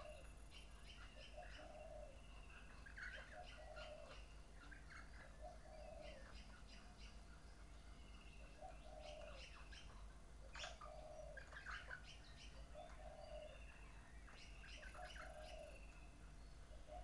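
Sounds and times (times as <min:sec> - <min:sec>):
birds chirping and whistling: 0:00.0 - 0:10.0, 0:10.6 - 0:17.0
pigeon cooing: 0:01.3 - 0:02.2, 0:03.0 - 0:04.2, 0:05.3 - 0:06.4, 0:08.6 - 0:10.0, 0:10.6 - 0:12.0, 0:12.7 - 0:13.6, 0:14.9 - 0:15.8, 0:16.8 - 0:17.0.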